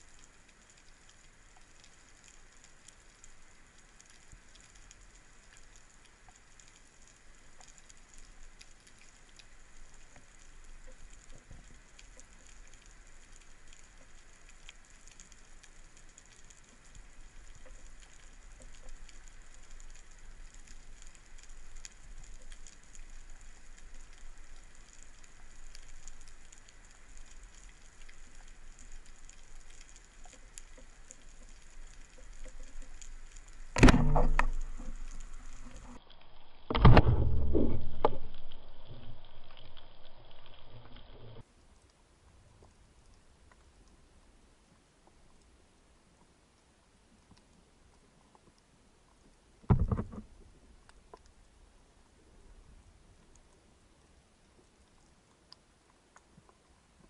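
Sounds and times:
snapping shrimp crackle: 0:07.6 - 0:36.9
low underwater rumble: 0:16.2 - 0:41.4, 0:49.7 - 0:50.8.

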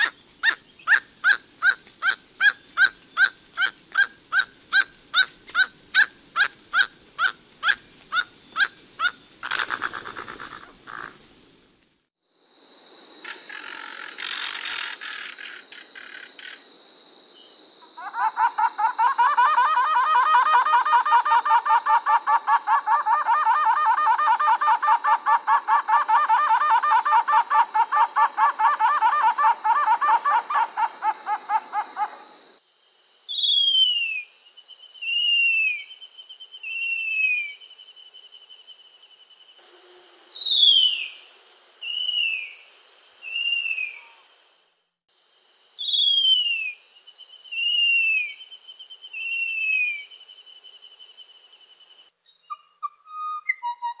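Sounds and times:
bird laughing pulsed call: 0:18.0 - 0:32.3.

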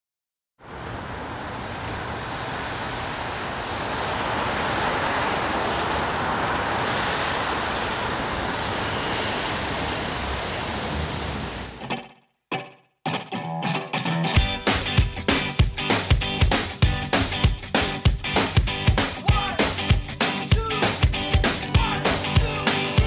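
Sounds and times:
steady rushing noise: 0:00.7 - 0:11.8.

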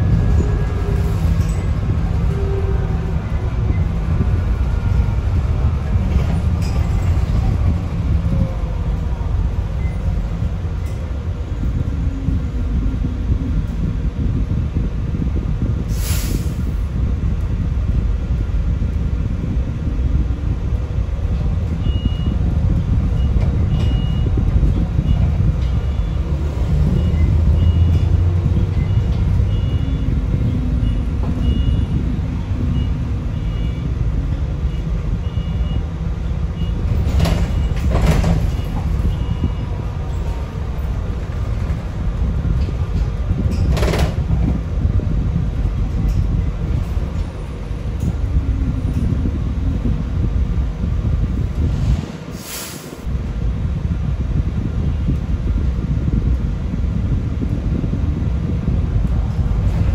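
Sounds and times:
bus road rumble: 0:00.0 - 0:59.9.

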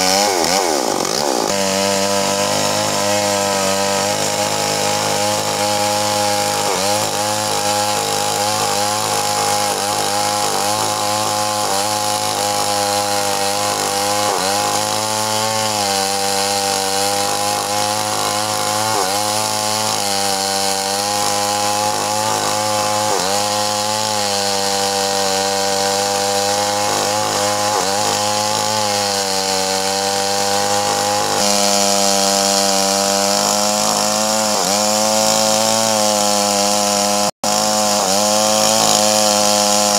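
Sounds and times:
chainsaw cutting through log: 0:00.0 - 0:39.9.

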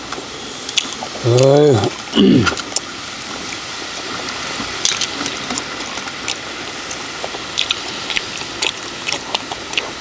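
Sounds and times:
clams sizzling on a grill: 0:00.0 - 0:10.0
sharp crackles and clicks: 0:02.5 - 0:10.0.

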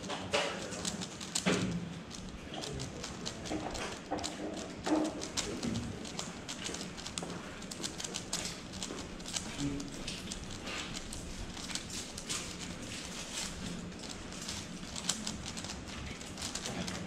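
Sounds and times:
plastic puzzle clicks and clacks: 0:00.0 - 0:17.0.

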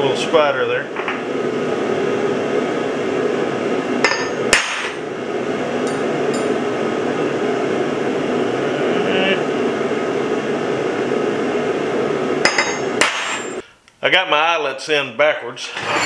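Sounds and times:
hammer striking steel punch: 0:04.0 - 0:05.0, 0:12.5 - 0:13.6.

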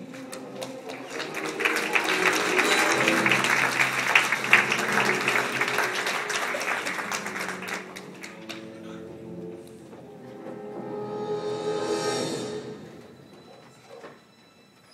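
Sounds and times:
audience applauding: 0:00.0 - 0:09.0
music playing: 0:00.0 - 0:13.8.

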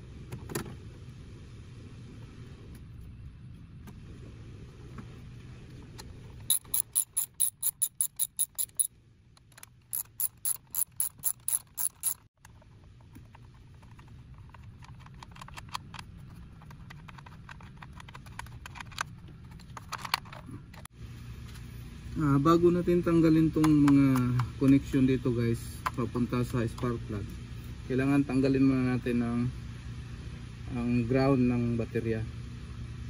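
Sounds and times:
ratchet wrench clicking: 0:06.5 - 0:08.9, 0:09.9 - 0:12.3.

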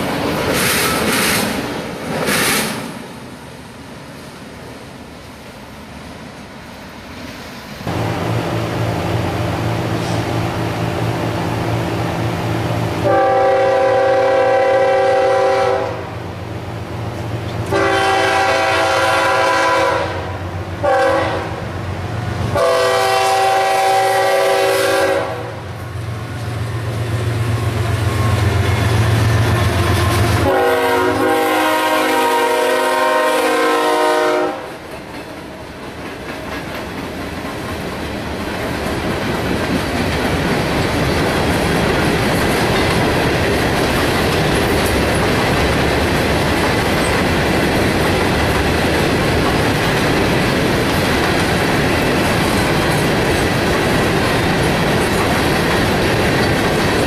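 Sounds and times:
diesel locomotives rumbling: 0:00.0 - 0:57.0
train horn blasts: 0:13.0 - 0:16.2, 0:17.7 - 0:21.7, 0:22.5 - 0:25.8, 0:28.0 - 0:34.8
wheels clicking over rail joints: 0:34.8 - 0:57.0.

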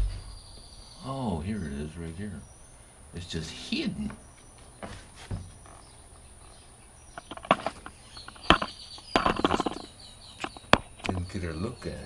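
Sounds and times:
scraping and rustling: 0:04.7 - 0:06.0, 0:07.2 - 0:11.3.

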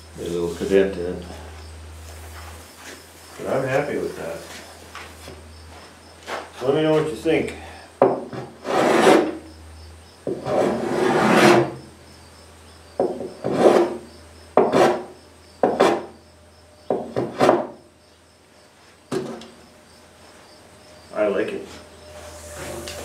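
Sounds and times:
hand tool rasping across wood: 0:08.2 - 0:09.4, 0:10.3 - 0:11.8, 0:13.2 - 0:14.0, 0:14.6 - 0:16.1.

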